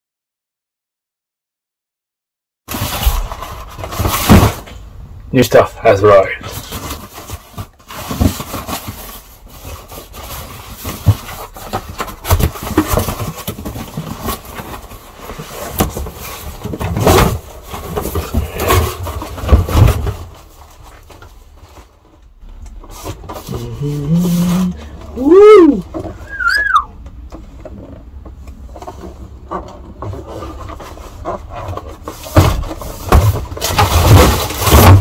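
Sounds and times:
box bumps: 0:02.7 - 0:04.8, 0:10.8 - 0:20.5, 0:29.6 - 0:35.0
cardboard box rustling: 0:02.7 - 0:04.8, 0:06.1 - 0:26.4, 0:28.6 - 0:35.0.

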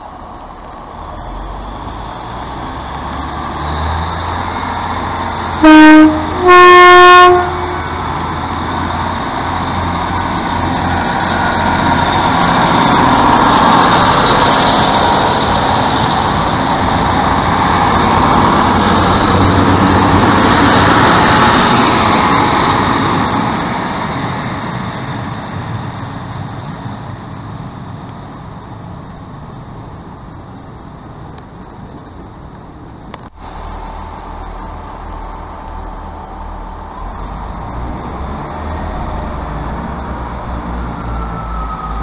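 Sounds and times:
diesel train engines: 0:00.0 - 0:42.0
train wheels on rails: 0:00.0 - 0:42.0.

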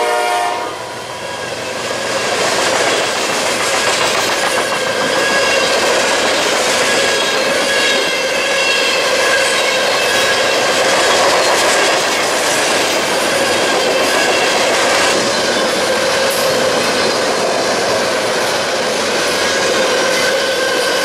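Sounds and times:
train wheels on rails: 0:00.0 - 0:21.0
high wheel squeal: 0:04.4 - 0:21.0.

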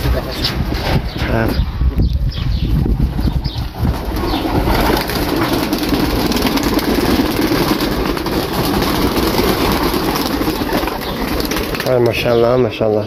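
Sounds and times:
pigeons cooing: 0:02.3 - 0:12.9.

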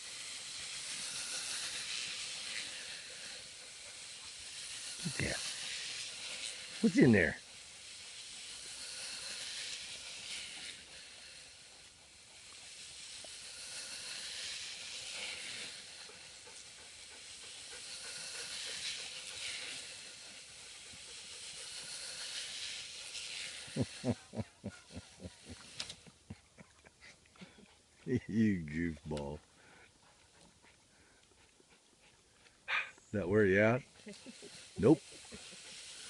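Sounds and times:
drain pipe scraping across ground: 0:00.0 - 0:26.1, 0:28.0 - 0:29.4.

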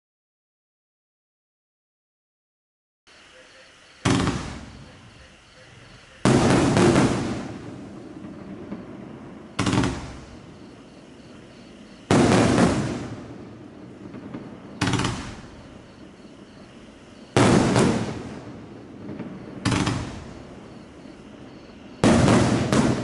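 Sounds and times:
fireworks bursts: 0:04.0 - 0:23.0.

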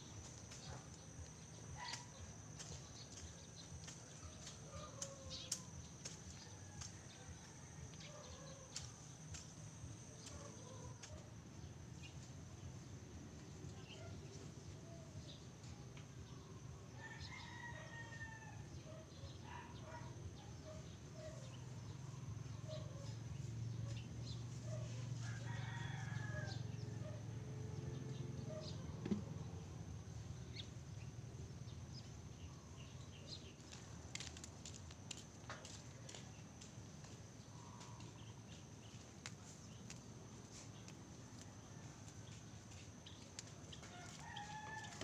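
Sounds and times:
rooster crowing: 0:25.2 - 0:26.7, 0:44.0 - 0:45.0.

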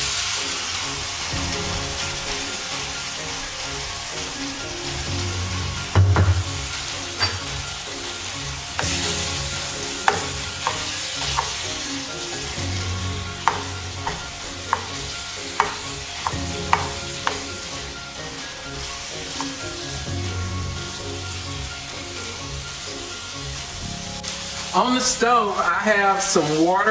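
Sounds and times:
chicken sizzling in frying pan: 0:00.0 - 0:26.9
dull knock: 0:06.0 - 0:06.5.

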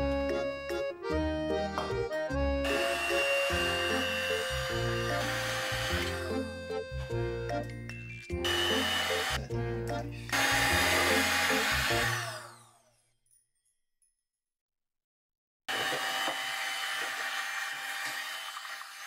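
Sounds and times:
background music: 0:00.0 - 0:12.6
electric hand mixer whirring: 0:02.6 - 0:07.1, 0:08.4 - 0:09.5, 0:10.2 - 0:13.0, 0:15.7 - 0:19.0.

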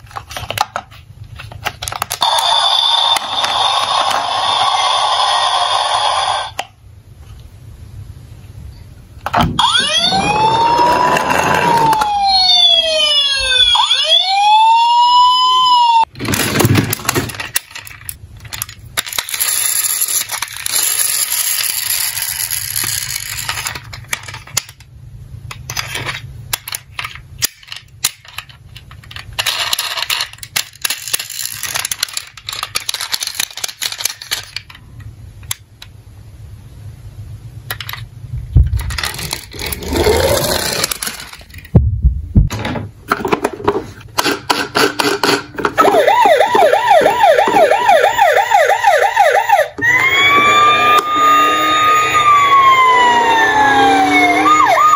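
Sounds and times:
electronic police siren wailing: 0:02.2 - 0:06.5, 0:09.6 - 0:16.1, 0:45.8 - 0:54.9
toy cars rattling in a box: 0:16.2 - 0:24.8, 0:25.6 - 0:34.8, 0:38.7 - 0:41.7.

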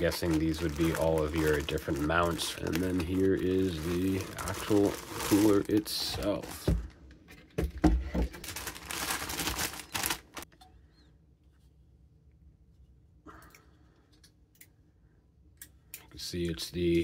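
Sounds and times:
plastic bag crinkling: 0:00.0 - 0:07.0, 0:08.2 - 0:10.5.

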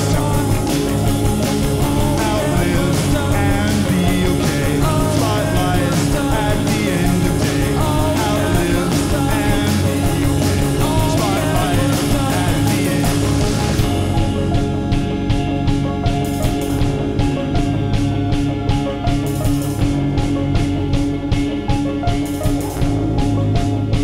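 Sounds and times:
person singing: 0:00.0 - 0:14.5
rock band playing live: 0:00.0 - 0:24.0.

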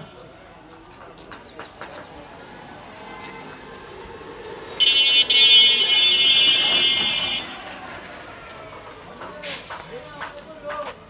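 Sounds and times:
faint street noise: 0:00.0 - 0:11.0
vehicle horn long note: 0:04.8 - 0:07.7.

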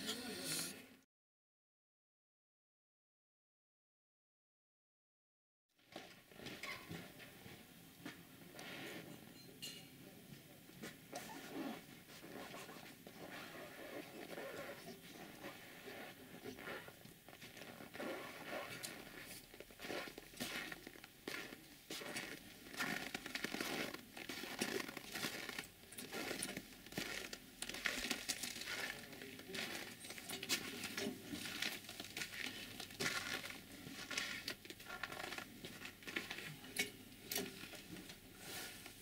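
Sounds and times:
footsteps on packed snow: 0:19.8 - 0:34.4.

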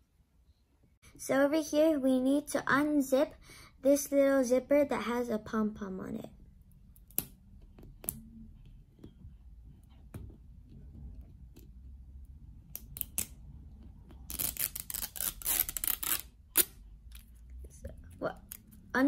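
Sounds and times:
plastic zipper unzipping: 0:14.2 - 0:16.7.

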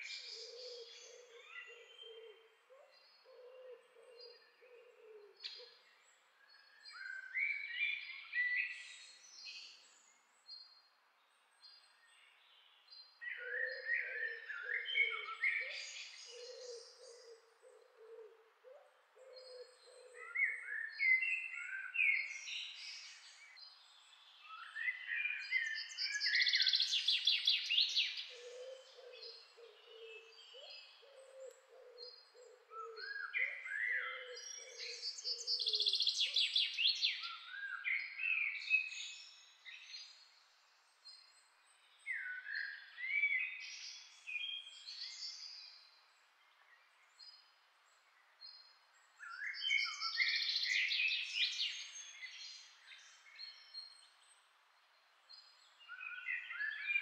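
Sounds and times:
birds singing with trills: 0:00.0 - 0:10.8, 0:11.6 - 0:18.2, 0:19.2 - 0:40.4, 0:41.0 - 0:46.0, 0:46.6 - 0:54.4, 0:55.3 - 0:57.0.

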